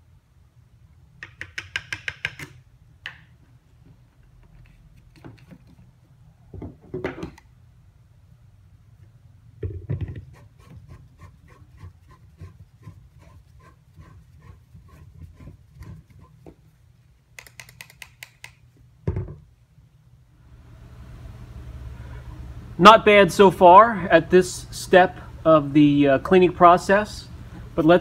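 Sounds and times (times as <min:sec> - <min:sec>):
knock: 0:19.1 - 0:19.4.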